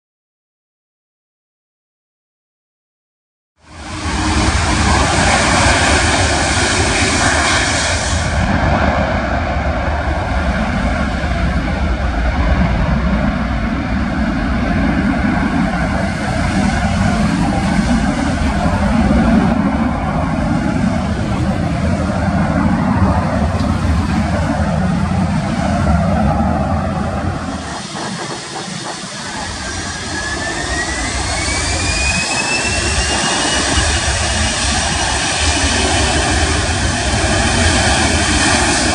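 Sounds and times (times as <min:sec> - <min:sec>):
airliner jet engines running: 0:03.6 - 0:38.9
wind buffeting microphone: 0:03.7 - 0:38.9.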